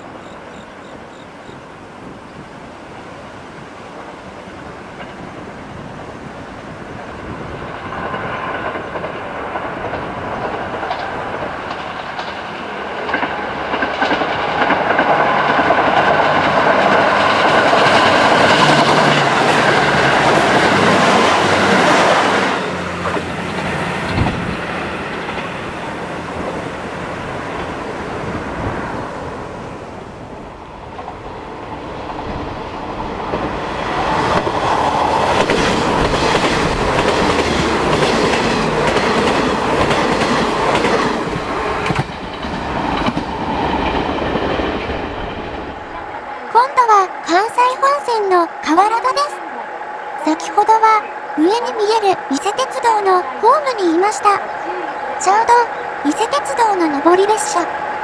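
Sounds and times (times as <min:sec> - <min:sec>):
diesel train passing: 0:00.0 - 0:58.0
wheels on rails: 0:07.2 - 0:29.3, 0:30.1 - 0:58.0.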